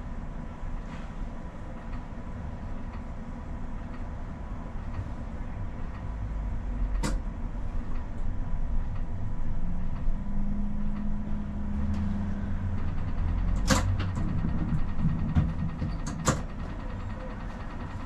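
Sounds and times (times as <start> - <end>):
tram motor hum: 0.0 - 18.0
tram rumbling on rails: 0.0 - 18.0.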